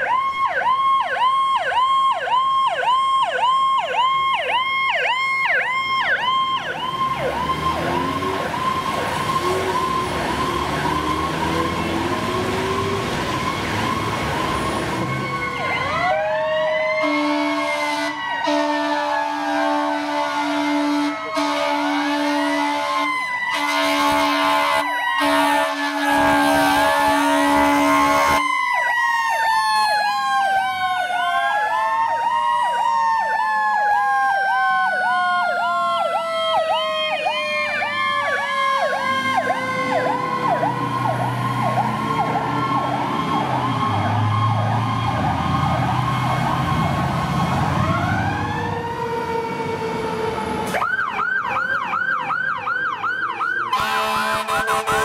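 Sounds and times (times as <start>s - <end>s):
high yelp siren: 0.0s - 55.0s
siren wailing and yelping: 0.0s - 55.0s
diesel engine rumbling: 6.0s - 18.0s, 37.6s - 55.0s
fire engine air horn blasts: 14.6s - 28.6s, 53.7s - 55.0s.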